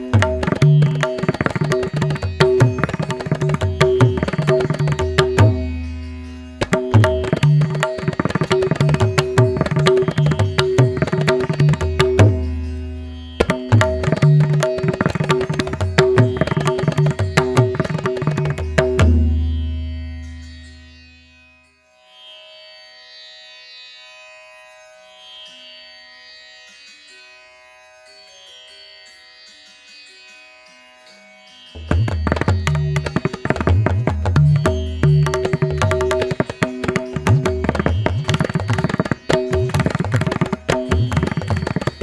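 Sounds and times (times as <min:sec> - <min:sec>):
hand drum rhythm: 0:00.1 - 0:05.6, 0:06.6 - 0:12.4, 0:13.4 - 0:19.3, 0:31.8 - 0:42.0.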